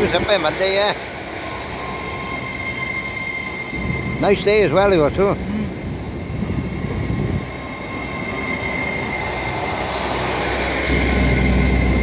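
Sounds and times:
train running with high whine: 0.0 - 12.0
deep rumble: 3.6 - 12.0.

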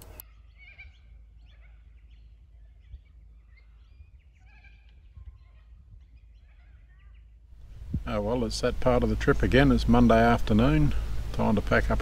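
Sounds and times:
birds chirping and warbling: 0.0 - 12.0
low steady rumble: 7.2 - 12.0.

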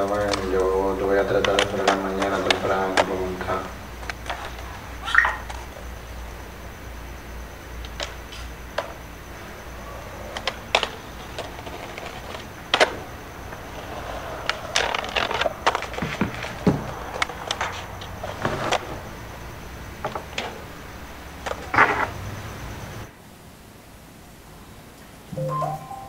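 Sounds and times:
heavy skateboard knocks: 0.0 - 5.9, 7.8 - 9.1, 10.1 - 22.4
skateboard clacks: 0.0 - 6.8, 7.4 - 23.1
skateboard rolling rush: 0.0 - 23.1.

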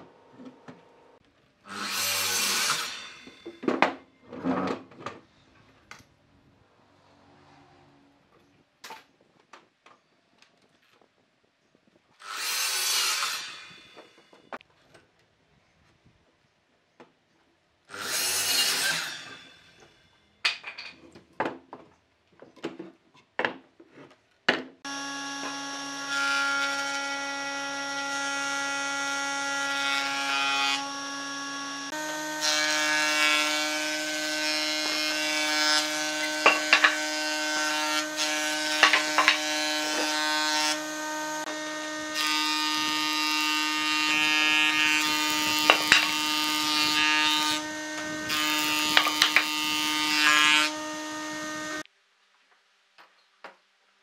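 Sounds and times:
rasping saw cut: 1.7 - 3.5, 12.2 - 14.2, 17.9 - 19.9, 24.9 - 51.9
jointer-planer humming: 24.9 - 51.8
rough planing noise: 31.9 - 51.9.

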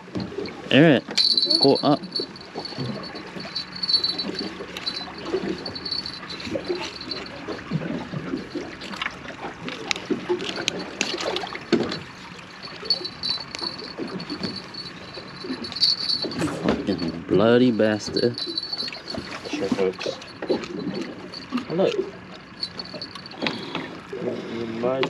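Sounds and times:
water lapping against boat hull: 0.0 - 25.0
clicks and knocks of gear: 8.3 - 17.0.

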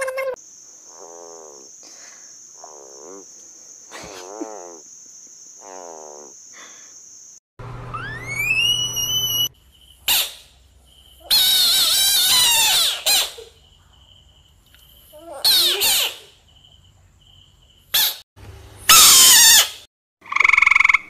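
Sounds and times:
frogs calling: 0.0 - 6.9, 8.0 - 13.7, 20.2 - 21.0
loud wavering squeal: 7.9 - 9.6.

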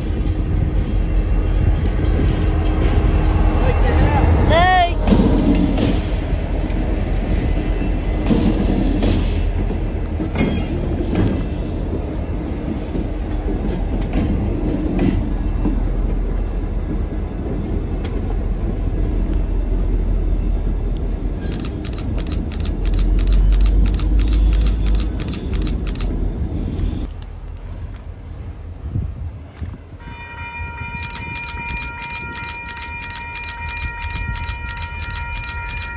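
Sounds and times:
diesel locomotive engine rumble: 0.0 - 35.9
wheels clicking over rail joints: 30.9 - 35.9.

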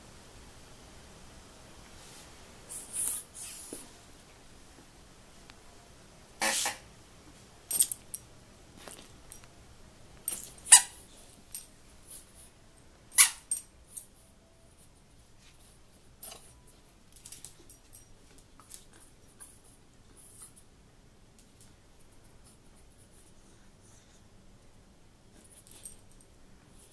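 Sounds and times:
rubber squeak toy squeaking: 13.2 - 13.4.

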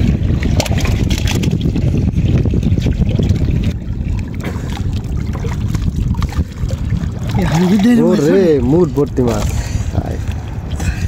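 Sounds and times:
water splashing and sloshing: 0.0 - 11.0
wind rumbling on microphone: 0.0 - 11.0.

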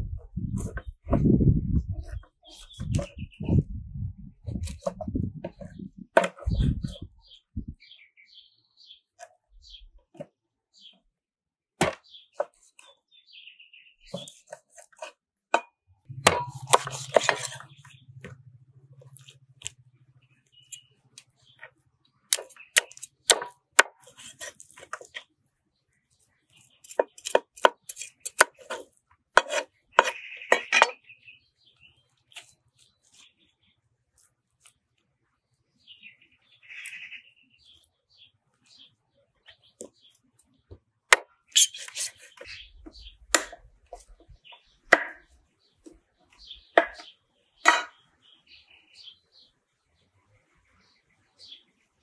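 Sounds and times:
cleaver chopping on wooden board: 11.8 - 12.0, 15.6 - 17.6, 22.3 - 24.1, 29.4 - 31.0, 43.3 - 44.1, 44.9 - 45.3, 46.8 - 47.1, 47.7 - 48.0.

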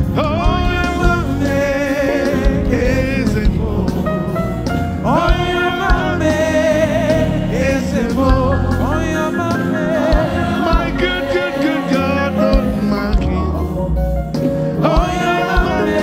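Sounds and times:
backing band: 0.0 - 16.0
person singing: 5.0 - 13.9, 14.5 - 16.0.

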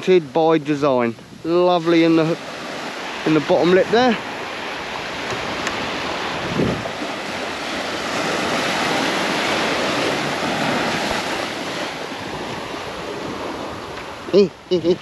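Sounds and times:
waves breaking on beach: 0.0 - 15.0.

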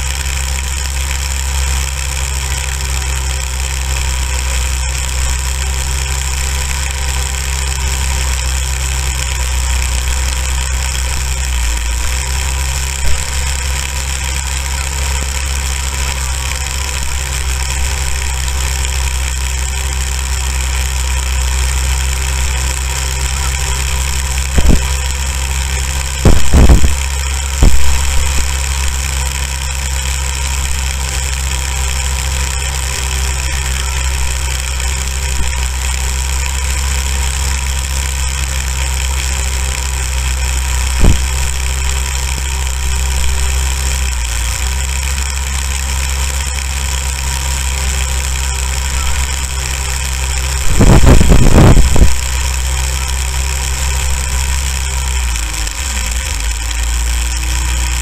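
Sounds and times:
go-kart engine running: 0.0 - 58.0
loud thumps: 26.2 - 28.6, 40.9 - 41.7.

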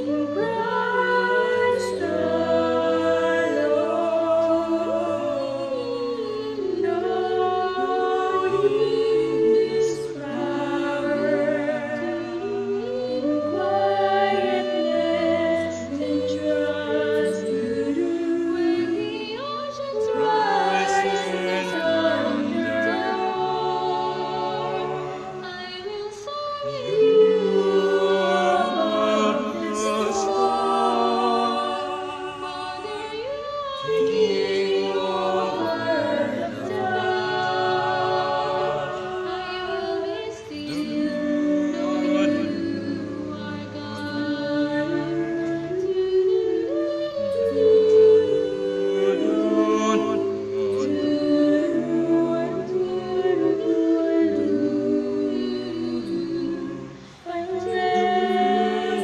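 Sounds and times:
group singing a cappella: 0.0 - 59.0.

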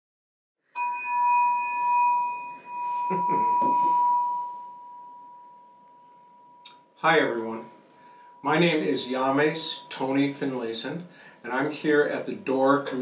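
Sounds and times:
metal plate ringing: 0.8 - 5.7.

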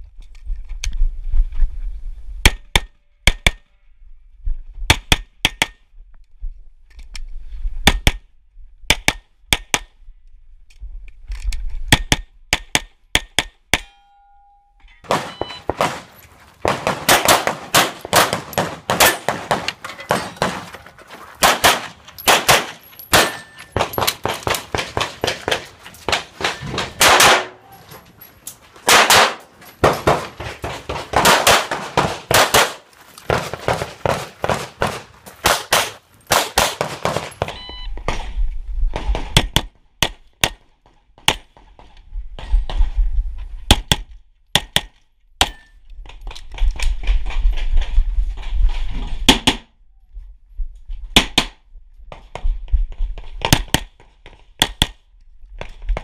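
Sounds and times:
steel targets clanging: 13.8 - 32.5
pistol shots: 15.1 - 20.7, 21.4 - 27.6, 28.8 - 37.6.

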